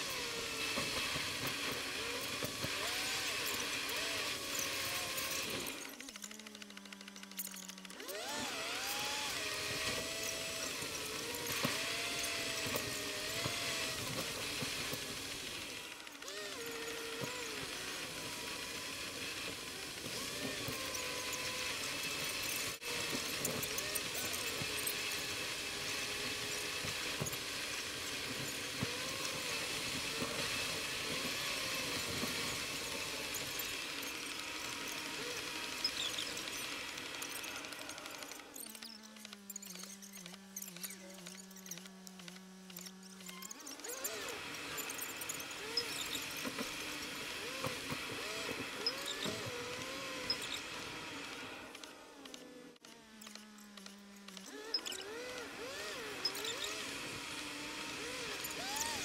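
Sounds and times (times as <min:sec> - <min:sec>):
high squeaks: 0:33.4 - 0:46.7.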